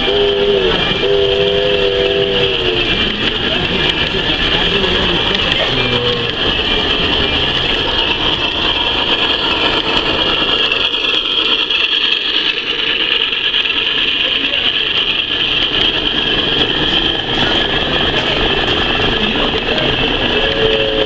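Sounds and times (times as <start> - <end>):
high-pitched whine: 0.0 - 21.0
model train wheels rattling on track: 0.0 - 21.0.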